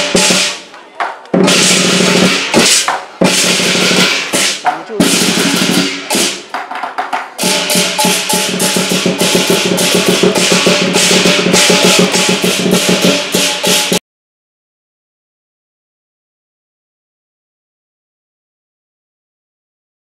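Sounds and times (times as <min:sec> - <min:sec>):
music with loud drums: 0:00.0 - 0:14.0.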